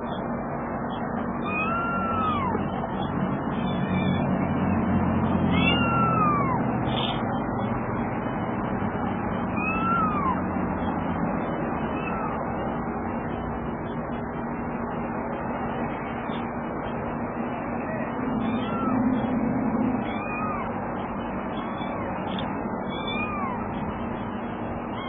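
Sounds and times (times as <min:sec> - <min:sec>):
kitten meowing: 0:01.4 - 0:07.4, 0:09.6 - 0:10.5, 0:11.9 - 0:12.5, 0:17.8 - 0:20.8, 0:21.5 - 0:23.8.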